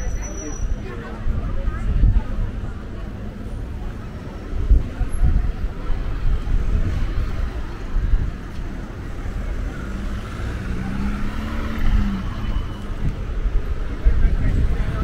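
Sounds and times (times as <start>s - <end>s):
low traffic rumble: 0.0s - 15.0s
cars driving past: 3.3s - 15.0s.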